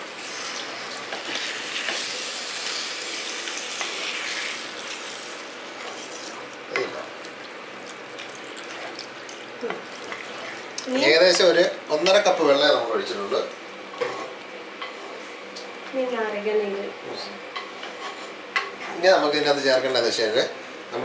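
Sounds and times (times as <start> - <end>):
chicken sizzling in pan: 0.0 - 13.1.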